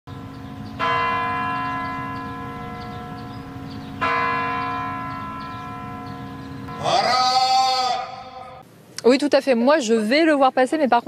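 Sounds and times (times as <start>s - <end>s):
big clock bell striking: 0.1s - 7.4s.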